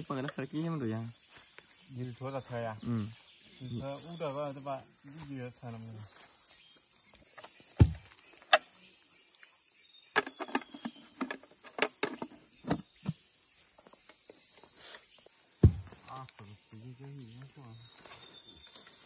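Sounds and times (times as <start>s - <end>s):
forest insects droning: 0.0s - 19.0s
sharp knocks and clicks: 10.2s - 13.2s.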